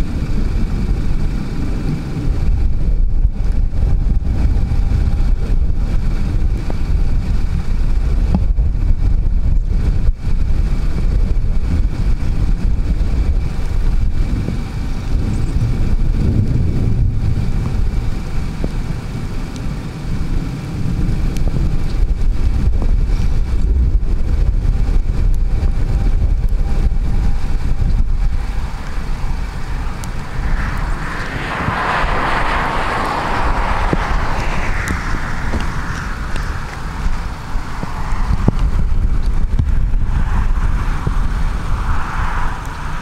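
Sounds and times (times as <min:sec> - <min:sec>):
wind buffeting microphone: 0:00.0 - 0:43.0
broad rushing sound: 0:27.0 - 0:43.0.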